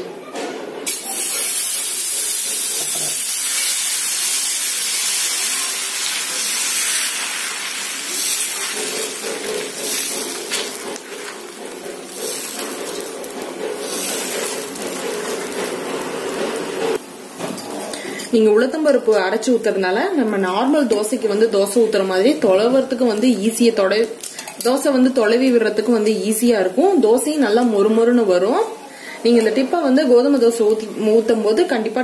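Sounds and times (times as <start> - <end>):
batter sizzling on a hot griddle: 0.9 - 17.0.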